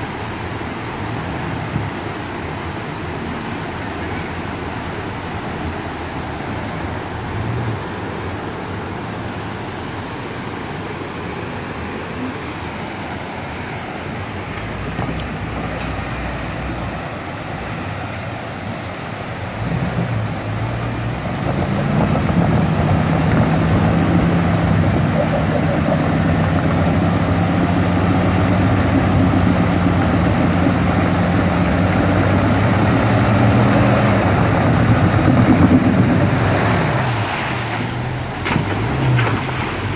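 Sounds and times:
creek water rushing: 0:00.0 - 0:39.9
water splashing: 0:00.0 - 0:39.9
car engine running: 0:18.8 - 0:39.9.

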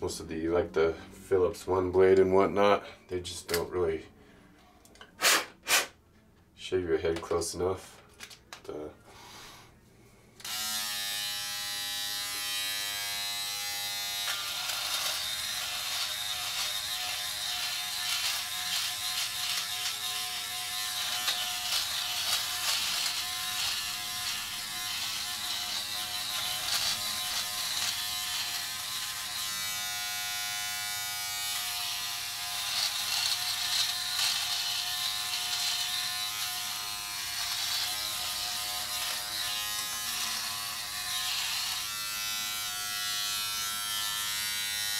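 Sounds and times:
electric trimmer buzzing: 0:10.4 - 0:44.9.

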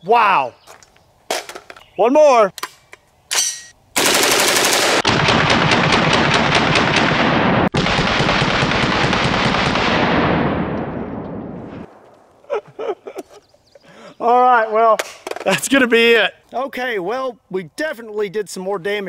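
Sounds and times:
rifle firing full auto: 0:04.0 - 0:10.5.

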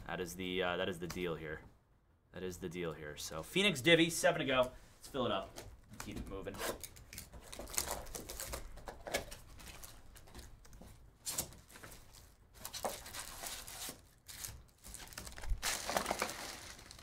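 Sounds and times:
shrink wrap crinkling and tearing: 0:06.7 - 0:17.0
cardboard and foil rustling: 0:06.9 - 0:17.0.

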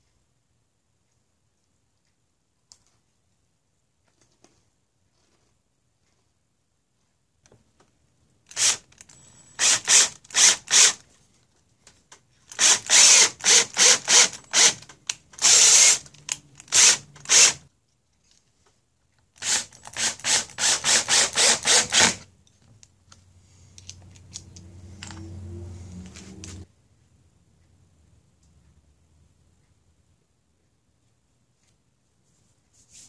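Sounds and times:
cordless drill driving screws: 0:08.5 - 0:11.0, 0:12.5 - 0:14.8, 0:15.4 - 0:17.6, 0:19.4 - 0:22.2.

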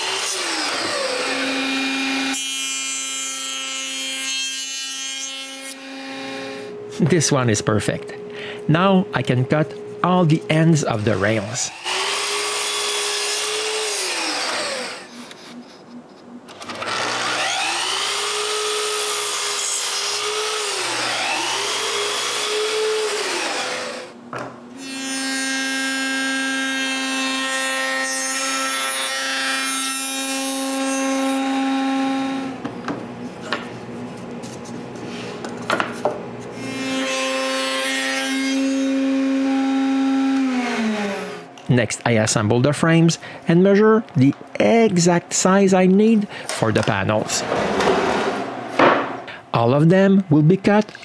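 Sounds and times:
miter saw cutting wood: 0:00.0 - 0:06.8, 0:10.5 - 0:24.2, 0:24.8 - 0:32.6, 0:36.6 - 0:41.5
router table humming: 0:11.2 - 0:24.2.

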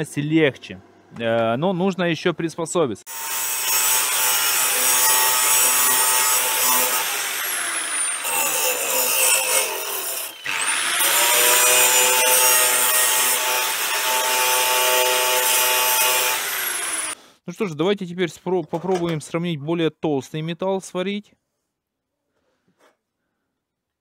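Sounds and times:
angle grinder cutting steel: 0:03.1 - 0:17.2.

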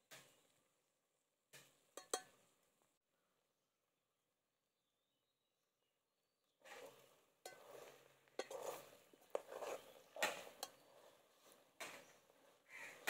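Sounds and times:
spoon stirring thick mash: 0:01.6 - 0:02.6, 0:06.6 - 0:13.0
spoon clinking against metal pot: 0:01.9 - 0:02.4, 0:07.4 - 0:10.9.

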